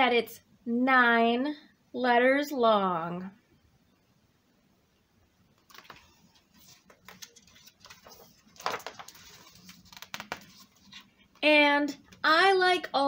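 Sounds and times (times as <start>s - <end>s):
book pages turning: 5.6s - 11.4s
paper rustling with crackly clicks: 5.6s - 11.5s.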